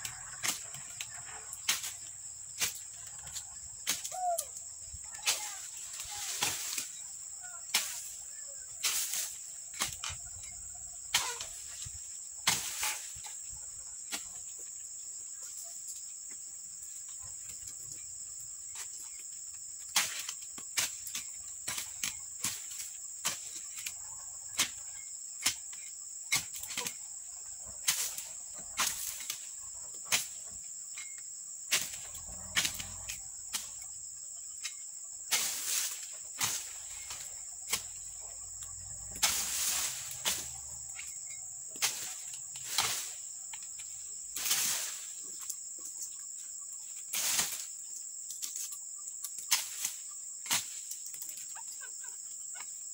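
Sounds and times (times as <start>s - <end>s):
pruning pole chopping palm fronds: 0.0s - 3.0s, 3.8s - 4.4s, 5.2s - 7.0s, 7.6s - 8.2s, 8.8s - 13.2s, 19.8s - 24.0s, 24.6s - 24.8s, 25.4s - 27.0s, 27.8s - 33.9s, 34.6s - 38.2s, 39.1s - 43.7s, 44.3s - 45.2s, 47.1s - 47.8s, 49.4s - 51.5s
insect chorus: 0.0s - 52.9s.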